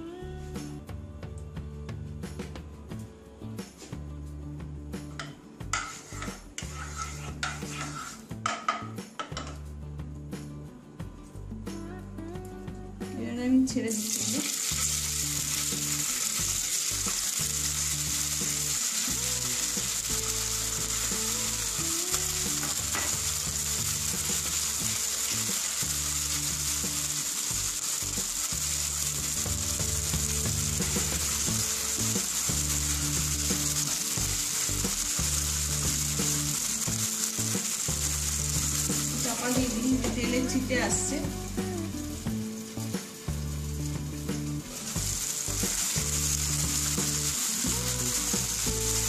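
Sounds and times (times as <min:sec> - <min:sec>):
food sizzling in hot oil: 0:05.0 - 0:09.5, 0:13.9 - 0:49.0.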